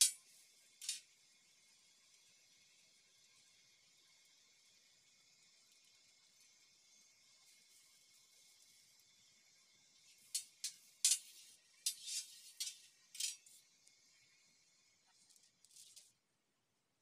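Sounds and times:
metal spatula scraping griddle: 10.2s - 13.6s.

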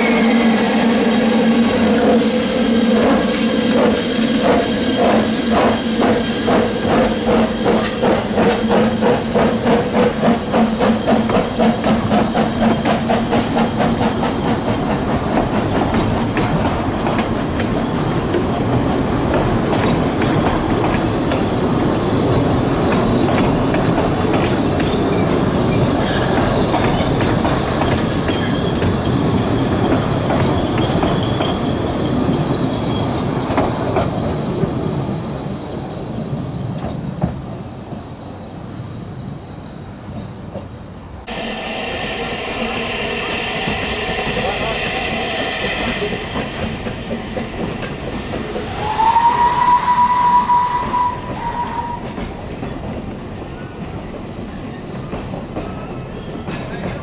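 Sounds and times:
steam locomotive chuffing: 0.0s - 31.6s, 41.2s - 57.0s
carriages clickety-clack: 3.0s - 32.4s, 50.4s - 57.0s.

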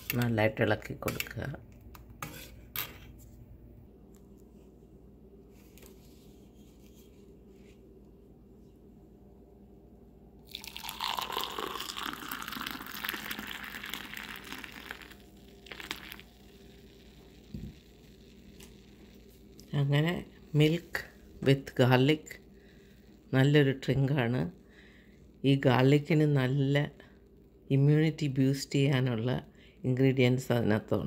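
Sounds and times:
milk pouring into a glass: 10.4s - 19.3s.

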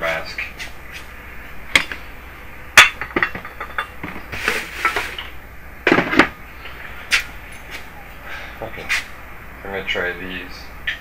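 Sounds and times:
hard objects knocking: 2.8s - 5.2s
rustling: 4.1s - 5.3s.

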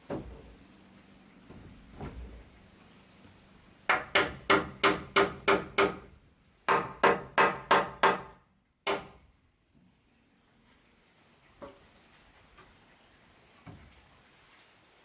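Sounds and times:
tool striking wood: 3.9s - 6.1s, 6.7s - 9.2s.

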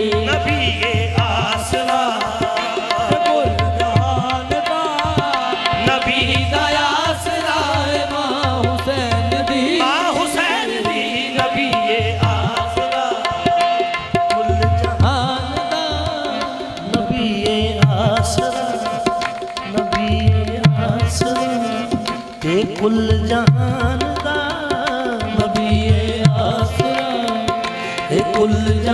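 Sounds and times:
singers' voices: 0.0s - 28.9s
harmonium holding a note: 18.8s - 28.9s.

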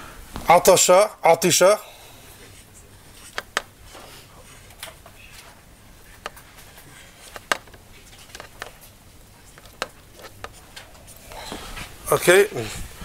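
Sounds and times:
sharp small clicks and knocks: 7.2s - 8.9s, 9.5s - 10.9s.

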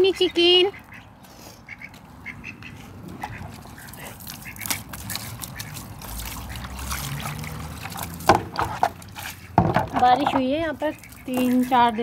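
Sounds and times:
ducks quacking: 0.0s - 12.0s
water splashing into plastic tub: 3.2s - 12.0s.

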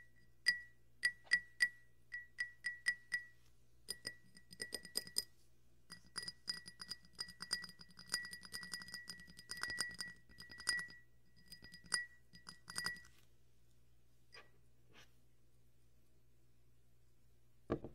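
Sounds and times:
glass tumbler tapped: 3.9s - 5.3s, 5.9s - 13.1s.

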